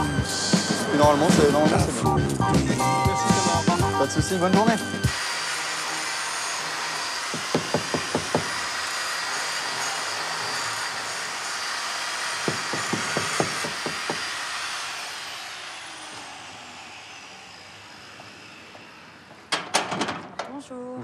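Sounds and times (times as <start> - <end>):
angle grinder whine: 0.0 - 19.8
sharp knocks: 7.3 - 8.6, 12.4 - 14.3.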